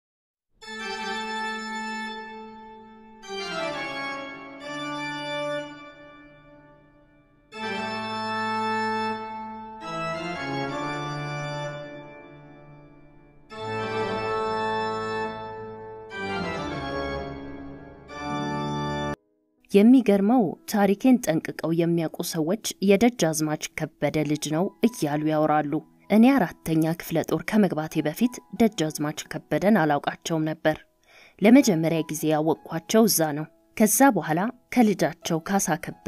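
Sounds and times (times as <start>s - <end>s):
organ-like keyboard chords: 0.6s - 19.2s.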